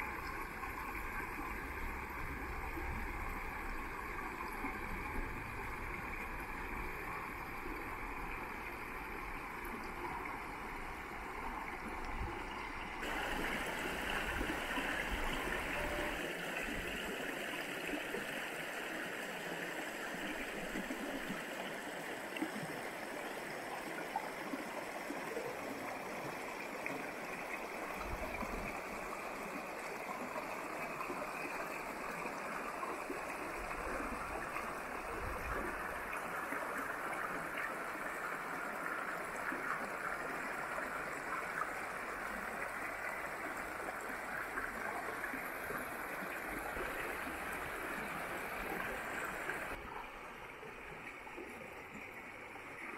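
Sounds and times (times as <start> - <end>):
water flowing over rocks: 0.0 - 52.9.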